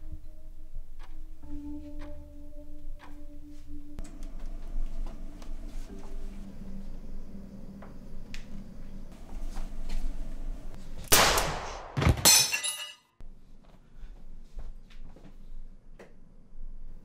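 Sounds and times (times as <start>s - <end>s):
bright shattering ring: 12.3s - 13.1s.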